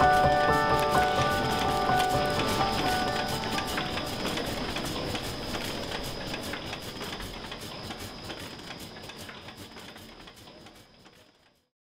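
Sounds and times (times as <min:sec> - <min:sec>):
thin high whine: 0:00.0 - 0:09.1
rhythmic mechanical clicking: 0:00.0 - 0:11.7.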